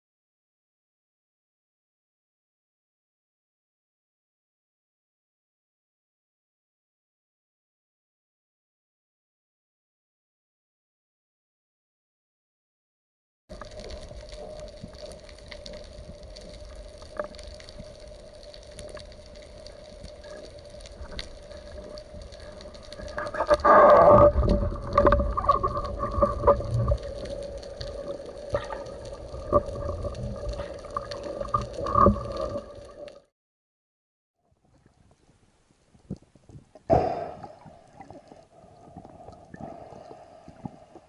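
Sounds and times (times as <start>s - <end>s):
underwater hum with crackle: 13.5s - 33.3s, 34.5s - 41.0s
low rumbling: 13.9s - 33.3s.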